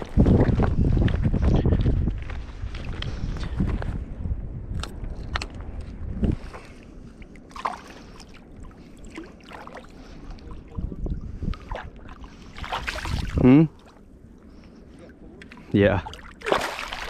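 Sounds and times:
shallow water sloshing: 6.4s - 17.0s
fish thrashing splash: 16.1s - 17.0s.

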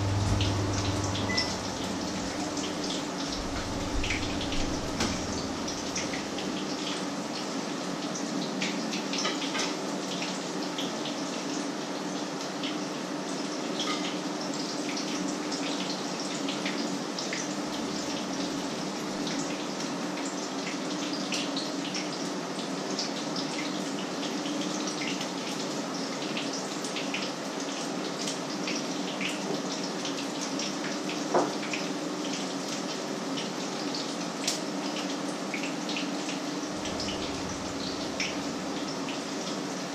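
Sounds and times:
low steady hum: 0.0s - 6.9s, 36.7s - 39.9s.

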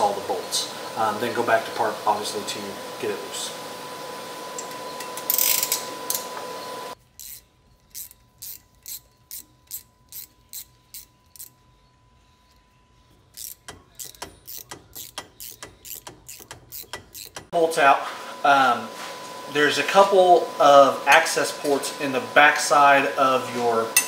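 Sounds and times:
ratchet clicking: 5.2s - 6.2s, 7.0s - 11.6s, 13.2s - 17.5s.

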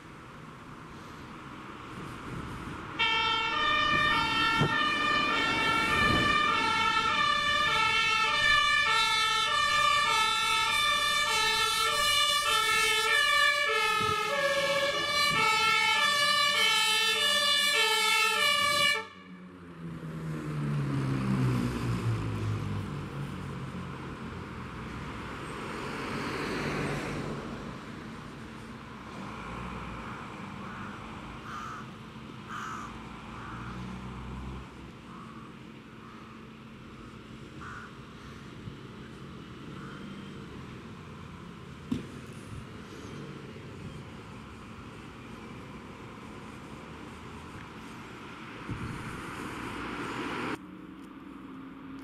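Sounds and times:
heavy vehicle engine passing: 0.4s - 52.0s
two-tone fire siren: 3.0s - 19.6s.

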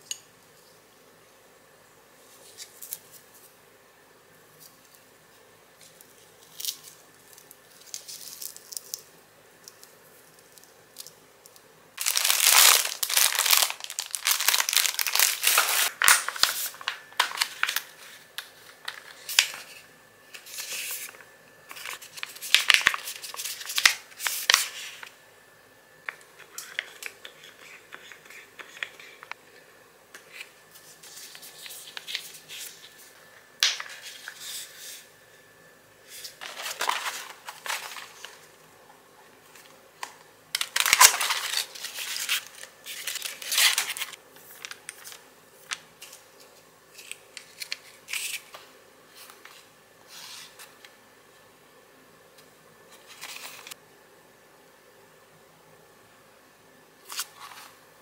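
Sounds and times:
crinkling and tearing: 12.0s - 17.9s, 40.0s - 45.2s
plastic handling and rustling: 12.0s - 25.1s, 36.1s - 38.6s, 39.4s - 48.5s.

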